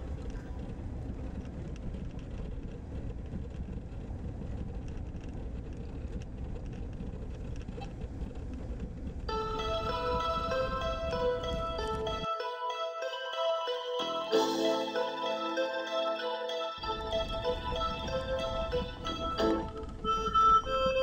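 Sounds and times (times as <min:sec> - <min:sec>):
car tyres and engine rumble: 0:00.0 - 0:12.4, 0:16.7 - 0:21.0
music with mallet notes: 0:09.3 - 0:21.0.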